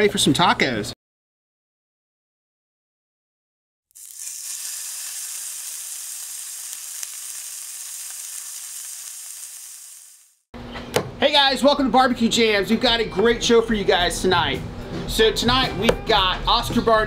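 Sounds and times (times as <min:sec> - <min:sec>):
steak sizzling on a grill: 0:04.0 - 0:10.5.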